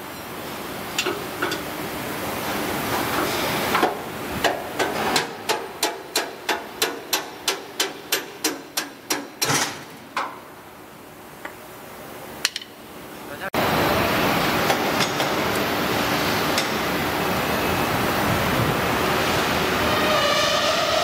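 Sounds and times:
hammer striking steel panel: 3.8s - 10.4s.

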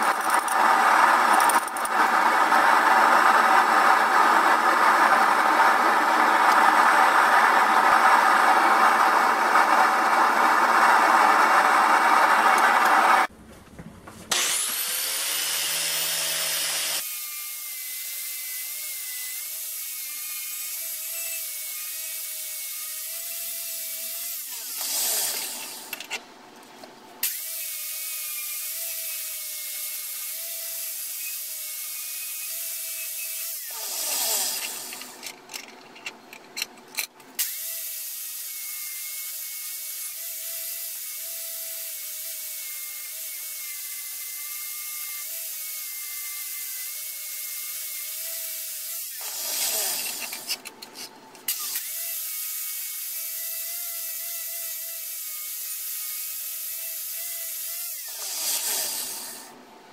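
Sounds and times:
wire wheel grinder whining on steel: 0.0s - 13.3s, 28.6s - 37.6s, 46.4s - 52.0s.

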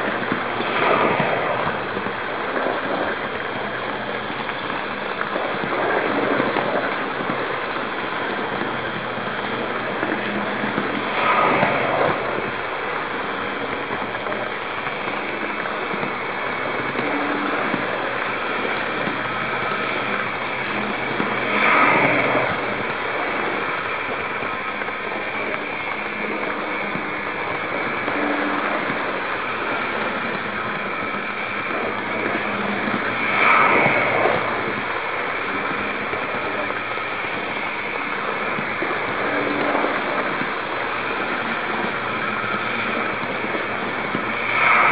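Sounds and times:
model train wheels rolling on rails: 0.0s - 44.9s.

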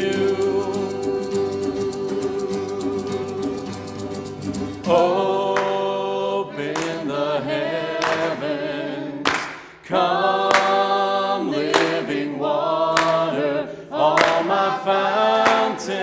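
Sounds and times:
instrumental music: 0.0s - 9.4s
group singing worship song: 0.0s - 16.0s.

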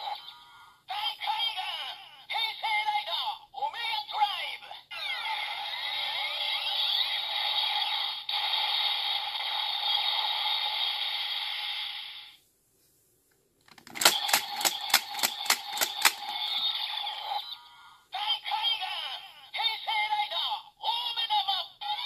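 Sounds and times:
toy electronic sound effects: 4.9s - 12.2s, 13.8s - 19.1s
plastic lever clicks: 13.7s - 16.3s.

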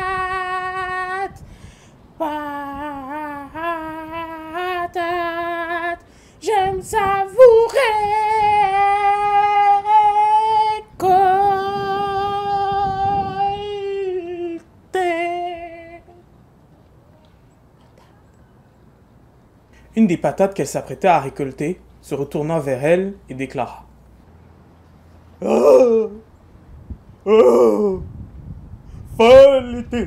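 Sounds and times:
woman singing unaccompanied: 0.0s - 1.4s, 2.2s - 16.3s.

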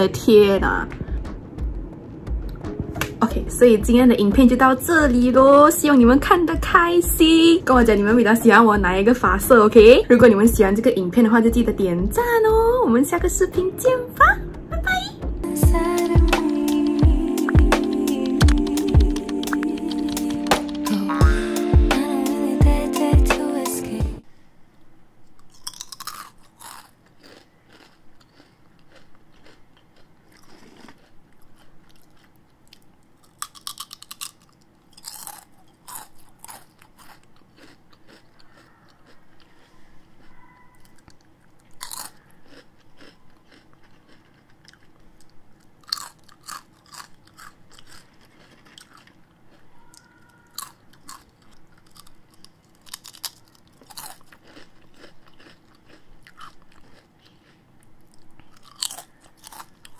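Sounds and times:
person crunching crispy chips: 25.4s - 59.9s.

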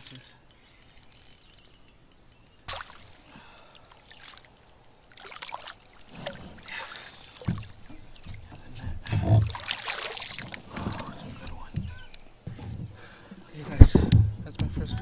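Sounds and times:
water splashing and sloshing: 2.6s - 14.2s
dull low thumps: 13.7s - 15.0s.

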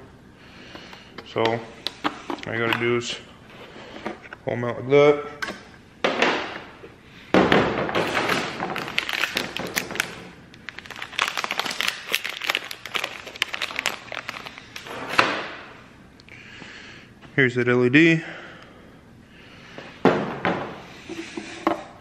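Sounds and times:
plastic and metal parts clattering: 7.4s - 15.4s.

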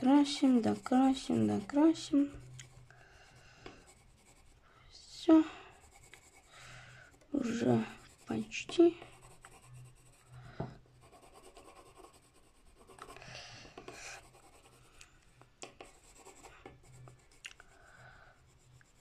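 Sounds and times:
pencil scratching on paper: 0.0s - 4.6s, 5.7s - 10.4s, 11.0s - 15.0s, 15.6s - 17.4s, 18.4s - 19.0s
soft pencil ticks: 2.3s - 2.9s, 6.0s - 6.4s.

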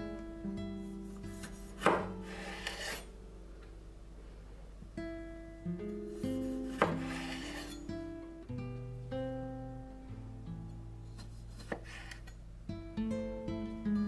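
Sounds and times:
acoustic guitar music: 0.0s - 4.1s, 4.8s - 14.0s
knife chopping tomato on board: 1.3s - 3.0s, 6.2s - 7.8s, 11.2s - 12.3s
knife scraping on wooden board: 1.3s - 3.1s, 6.2s - 7.9s, 11.2s - 12.4s.

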